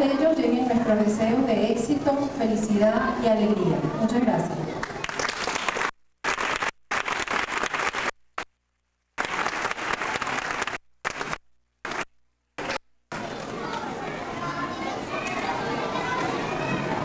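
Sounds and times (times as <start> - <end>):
audience applauding: 4.8 - 8.2, 9.2 - 13.8.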